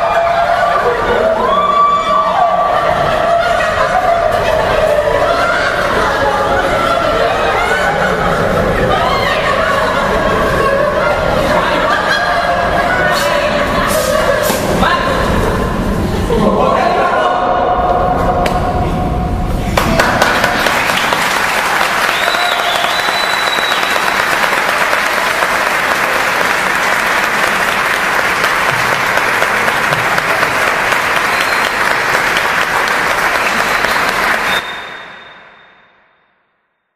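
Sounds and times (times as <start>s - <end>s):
audience applause: 19.8s - 35.2s.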